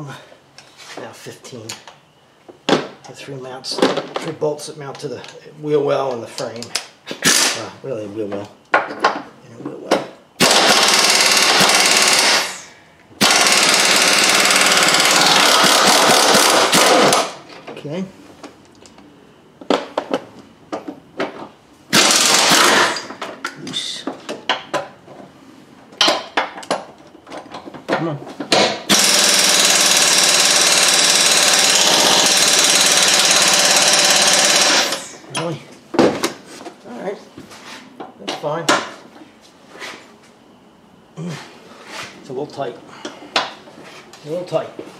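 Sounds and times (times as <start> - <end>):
pneumatic impact wrench hammering: 6.8 - 7.6, 10.4 - 17.4, 21.9 - 23.3, 28.5 - 35.2.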